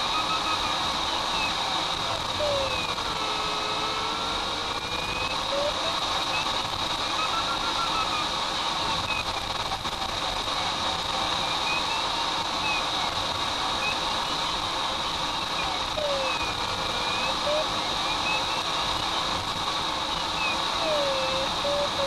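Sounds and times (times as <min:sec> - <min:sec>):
steady high whine: 0:00.0 - 0:22.0
variometer tone sliding in pitch: 0:20.8 - 0:22.0.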